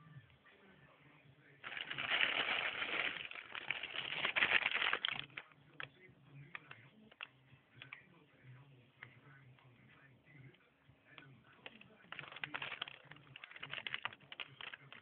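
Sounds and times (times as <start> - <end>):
plastic wrapping crinkling: 1.6 - 5.4, 11.6 - 15.0.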